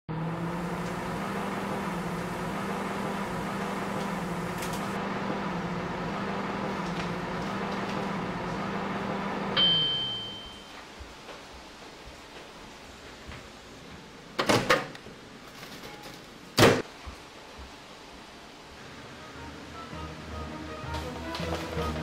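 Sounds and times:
microwave oven humming: 0:00.1 - 0:10.8
microwave beep: 0:09.4 - 0:10.8.

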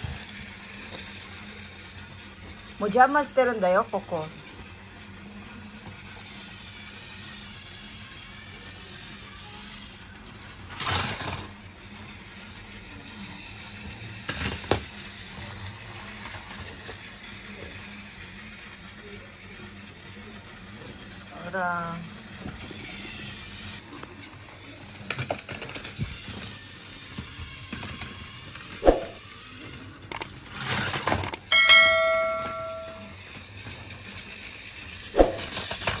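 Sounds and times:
toy train motor whirring: 0:00.0 - 0:36.0
metallic bell ring: 0:31.5 - 0:33.2.

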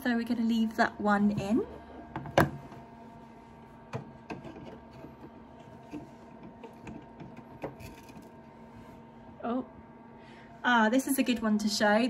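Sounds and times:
faint machine hum: 0:00.0 - 0:12.0.

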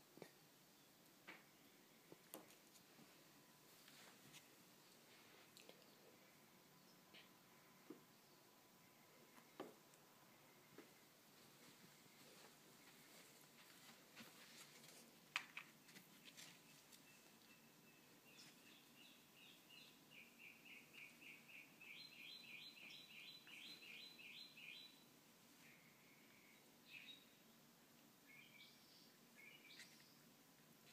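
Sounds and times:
cats scuffling on carpet: 0:02.3 - 0:05.6, 0:10.8 - 0:17.1
small bird chirping: 0:15.8 - 0:25.1, 0:25.7 - 0:27.4, 0:28.3 - 0:30.3.

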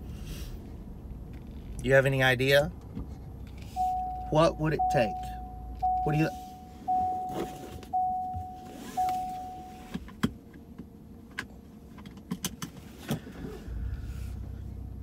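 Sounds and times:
low rumble: 0:00.0 - 0:07.3
seatbelt reminder chime: 0:03.8 - 0:09.9
seatbelt clicks and rattles: 0:09.9 - 0:13.3.

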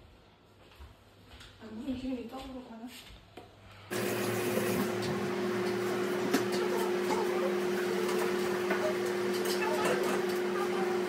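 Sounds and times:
kitchen appliance motor humming: 0:03.9 - 0:11.0
clicks and clatter of kitchen work: 0:05.0 - 0:10.6.

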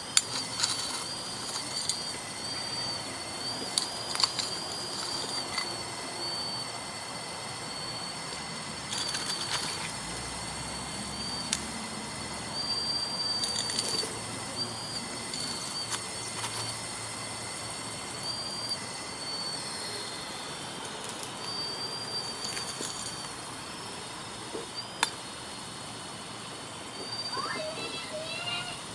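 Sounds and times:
small electric motors whining: 0:00.0 - 0:28.9
gritty rasps: 0:00.1 - 0:06.0, 0:20.9 - 0:23.5.

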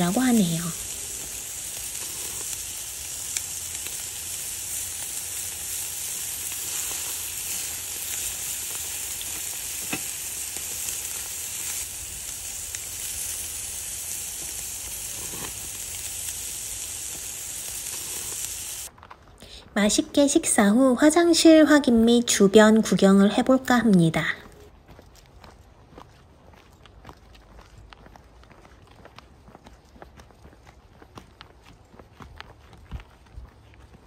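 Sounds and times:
meat sizzling on grill: 0:00.0 - 0:18.9.

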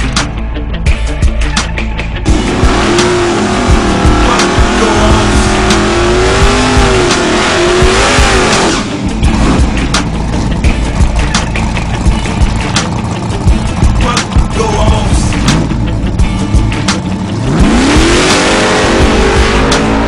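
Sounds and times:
background music with steady beat: 0:00.0 - 0:20.0
car engine: 0:00.0 - 0:20.0
tires squealing: 0:02.2 - 0:10.6.

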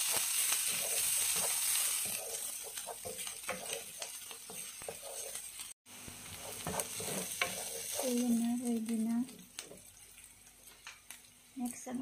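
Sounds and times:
wooden spatula scraping pan: 0:00.0 - 0:05.7, 0:06.3 - 0:08.5
onions sizzling in butter: 0:00.0 - 0:12.0.

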